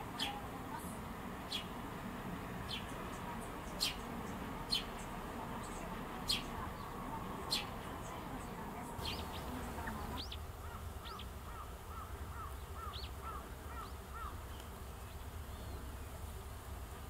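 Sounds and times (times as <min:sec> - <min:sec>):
bird calling: 0:00.0 - 0:01.8, 0:02.6 - 0:14.7
higher bird notes: 0:02.6 - 0:14.4.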